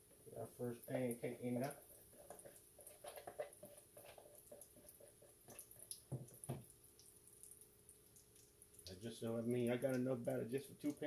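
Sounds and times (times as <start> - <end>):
small crackles and pops: 0.1 - 11.0
batter sizzling in a skillet: 1.7 - 8.9.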